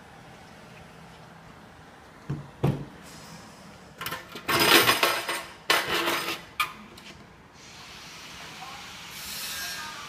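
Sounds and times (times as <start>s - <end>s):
metal tools clattering: 4.0s - 6.5s.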